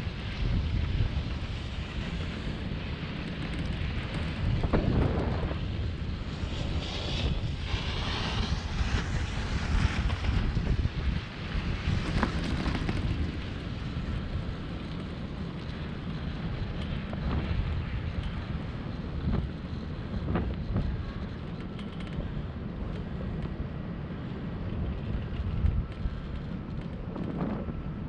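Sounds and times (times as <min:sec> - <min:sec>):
wind buffeting microphone: 0:00.0 - 0:28.0
skis scraping on snow: 0:00.1 - 0:14.2.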